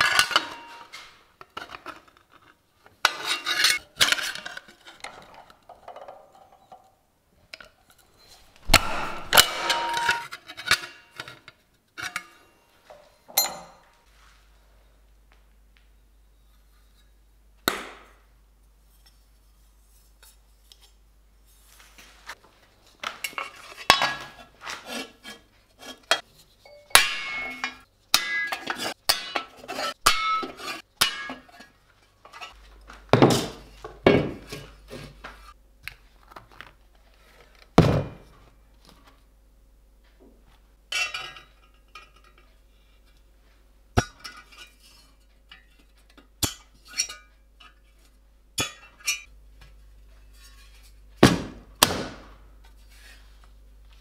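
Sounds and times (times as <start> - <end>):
metal clinking and knocking: 12.9 - 13.9.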